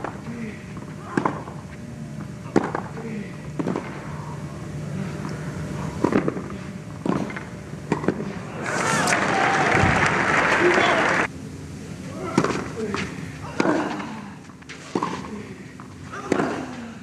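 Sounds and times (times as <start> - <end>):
racket hitting tennis ball: 2.5 - 3.0, 3.6 - 4.0, 6.0 - 8.3, 14.7 - 15.3
low crowd background: 8.0 - 16.9
crowd applause: 8.6 - 11.3.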